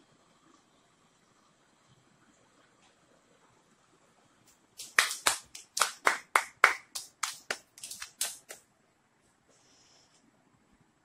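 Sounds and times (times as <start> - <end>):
hands clapping: 4.8 - 8.6.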